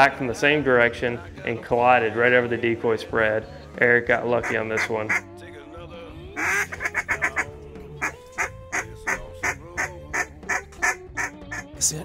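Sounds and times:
duck calls blown: 0:04.4 - 0:05.3, 0:06.4 - 0:11.7.

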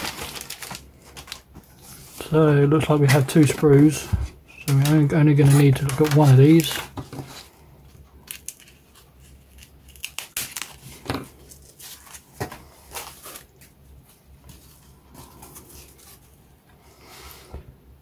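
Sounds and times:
foam sheet rustling and crinkling: 0:00.0 - 0:04.1, 0:04.7 - 0:07.5.

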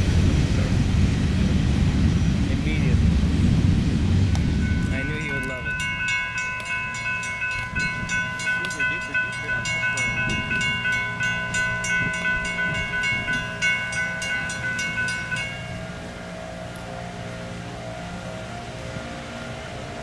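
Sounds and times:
train rumble: 0:00.0 - 0:20.0
crossing bell ringing rapidly: 0:04.5 - 0:18.9.

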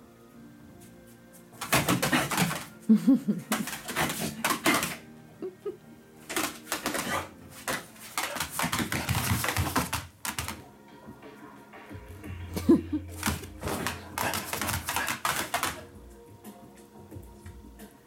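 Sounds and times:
dog claws scrabbling on floor: 0:01.6 - 0:02.7, 0:03.5 - 0:05.0, 0:06.3 - 0:10.6, 0:13.2 - 0:15.8.

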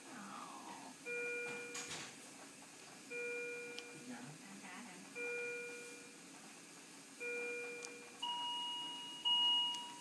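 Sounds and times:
monitor alarm chime: 0:01.0 - 0:02.0, 0:03.1 - 0:04.0, 0:05.2 - 0:06.1, 0:07.2 - 0:10.0
high alarm beep: 0:07.2 - 0:10.0.

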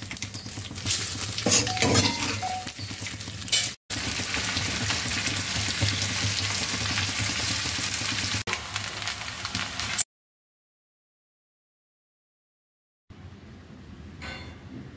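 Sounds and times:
hot oil sizzling: 0:00.0 - 0:10.1.

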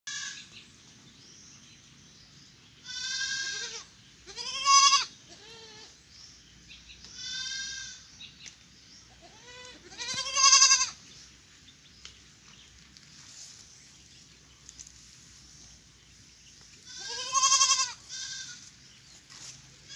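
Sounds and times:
goat kids bleating: 0:00.1 - 0:00.5, 0:02.8 - 0:06.0, 0:07.0 - 0:08.1, 0:09.1 - 0:11.0, 0:16.8 - 0:18.7.

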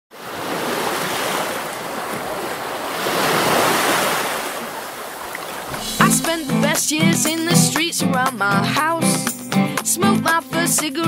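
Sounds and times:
waves breaking and washing in: 0:00.1 - 0:07.0.

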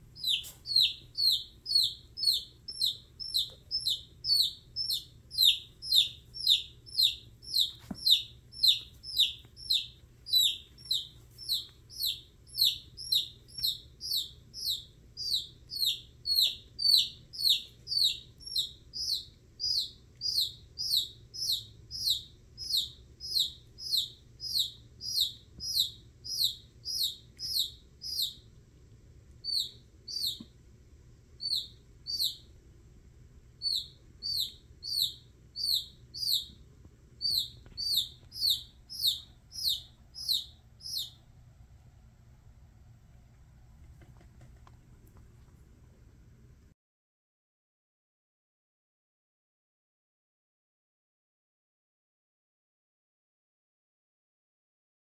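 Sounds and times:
baby chick peeping: 0:00.0 - 0:28.6, 0:29.4 - 0:30.6, 0:31.4 - 0:32.6, 0:33.6 - 0:41.3.

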